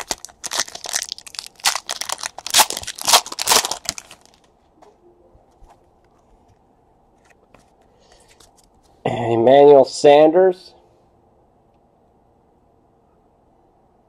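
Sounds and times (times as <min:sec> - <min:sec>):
plastic packaging crinkling: 0:00.0 - 0:04.5.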